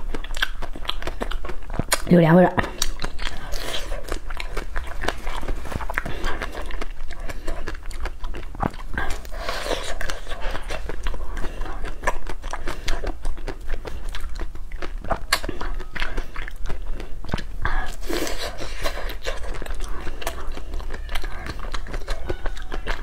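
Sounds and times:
wet mouth clicks and smacks: 0.1 - 3.4.

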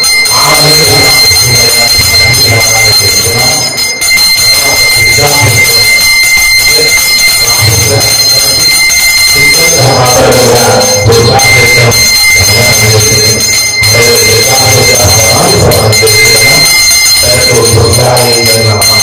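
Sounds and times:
handbell ringing: 0.0 - 19.0
voices chanting: 9.4 - 16.6.

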